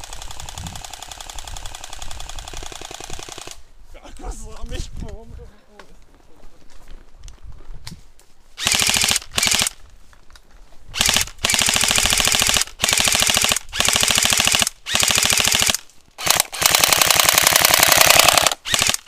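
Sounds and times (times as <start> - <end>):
airsoft rifles firing full-auto: 0.0 - 3.6, 8.6 - 9.8, 11.0 - 19.0.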